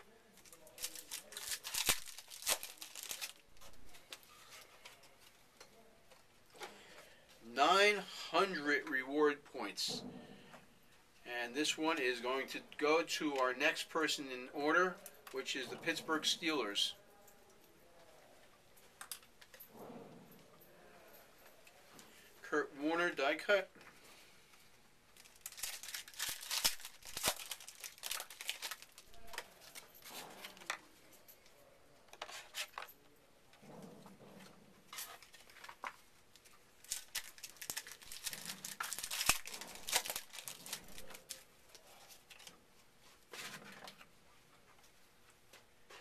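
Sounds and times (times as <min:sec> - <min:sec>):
wrappers torn and crinkled: 0:00.4 - 0:04.4, 0:25.2 - 0:30.7, 0:34.9 - 0:42.5
cards being handled: 0:00.4 - 0:05.1, 0:25.2 - 0:30.8, 0:34.9 - 0:42.5.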